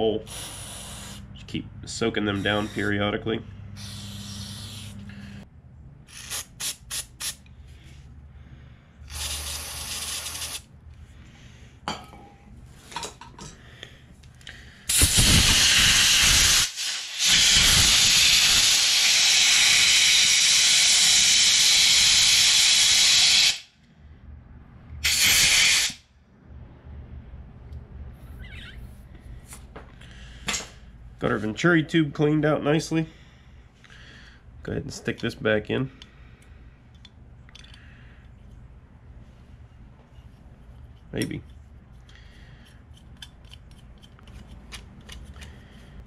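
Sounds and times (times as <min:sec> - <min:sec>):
compressed air blow gun hissing: 0:00.2 - 0:01.3, 0:03.8 - 0:05.4, 0:09.1 - 0:10.6, 0:14.9 - 0:23.7, 0:25.0 - 0:26.0
aerosol spray hisses: 0:03.8 - 0:05.1, 0:14.9 - 0:23.6.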